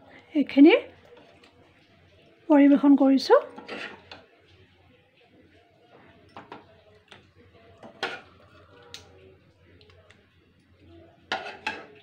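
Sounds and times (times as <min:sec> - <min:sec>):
spoon clinking against metal pot: 0:07.8 - 0:09.1, 0:11.3 - 0:12.0.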